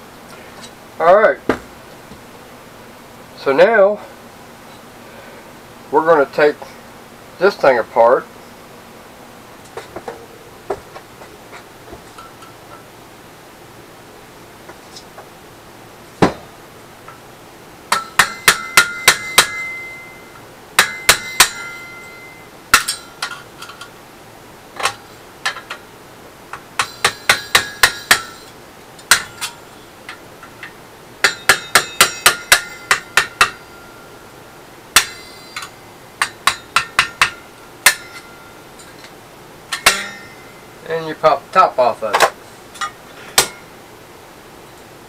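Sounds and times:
hammer striking metal: 0:17.9 - 0:20.2, 0:20.8 - 0:23.4, 0:26.8 - 0:28.5, 0:29.1 - 0:29.6, 0:31.2 - 0:34.1, 0:35.0 - 0:38.6, 0:39.7 - 0:40.7, 0:42.8 - 0:43.7.

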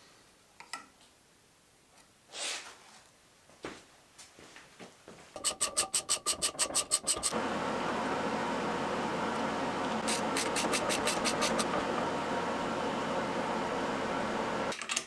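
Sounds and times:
steady louder noise: 0:07.3 - 0:14.7.

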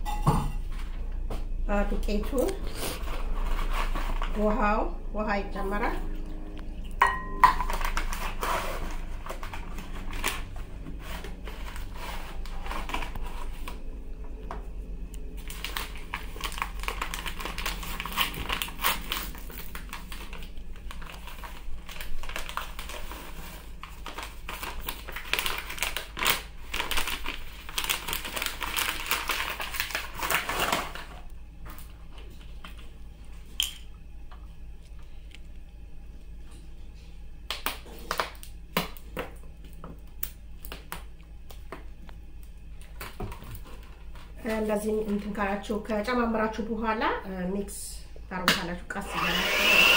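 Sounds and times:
paper bag crinkling: 0:02.6 - 0:04.5, 0:07.6 - 0:14.0, 0:15.4 - 0:31.3.

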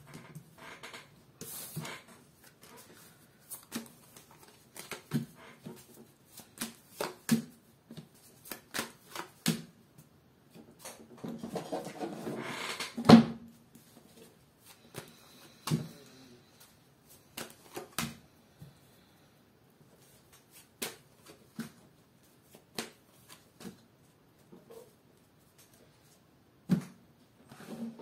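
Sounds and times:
cards shuffling rustle: 0:02.4 - 0:09.6.

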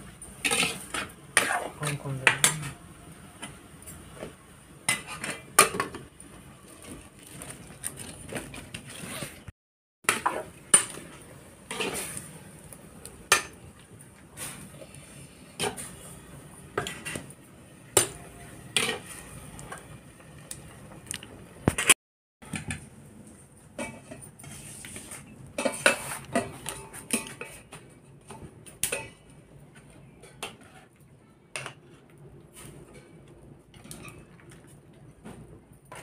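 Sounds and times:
metal spoon scraping cookware: 0:00.4 - 0:02.8, 0:18.0 - 0:19.2.

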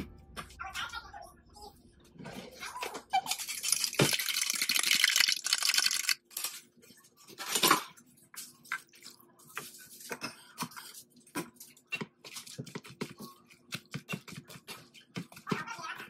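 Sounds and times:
fork beating eggs in plastic cup: 0:03.2 - 0:06.2, 0:09.0 - 0:16.0.

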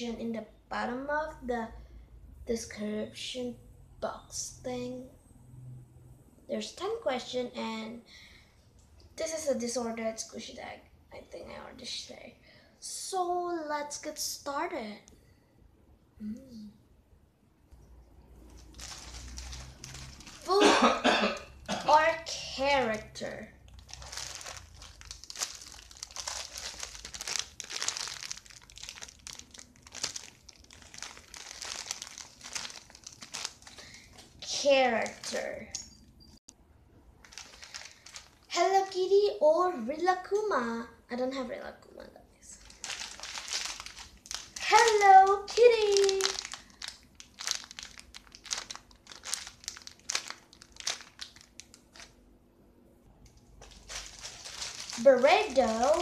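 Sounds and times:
plastic bags crinkling: 0:18.3 - 0:35.8, 0:37.2 - 0:38.7, 0:42.6 - 0:52.2, 0:53.3 - 0:56.0.

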